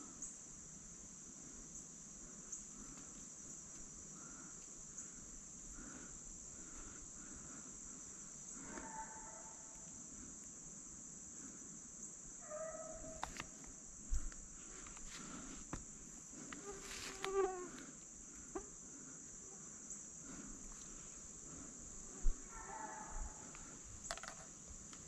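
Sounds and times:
high insect drone: 0.0 - 25.0
hound baying: 8.6 - 9.7, 12.4 - 13.3, 22.4 - 23.5
footsteps crunching dry leaves: 16.8 - 17.3.

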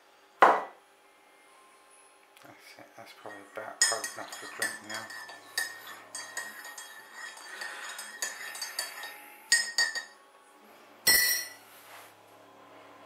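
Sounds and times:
metal spoon clinking glass mug: 3.3 - 10.2, 11.1 - 11.6.

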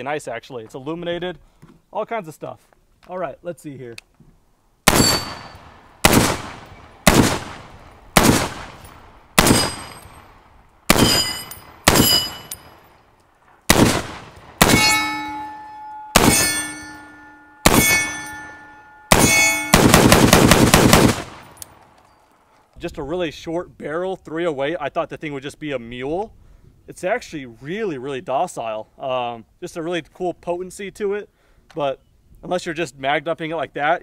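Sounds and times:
steel targets ringing: 4.9 - 5.6, 9.5 - 10.2, 10.9 - 12.8, 14.6 - 20.2
rifle gunshots: 4.9 - 10.2, 10.9 - 12.6, 13.7 - 15.1, 16.2 - 16.8, 17.6 - 18.4, 19.1 - 21.6.

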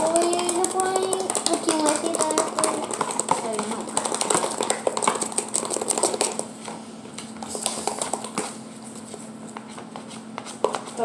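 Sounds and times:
plastic tub rattling when shaken: 0.0 - 6.4.

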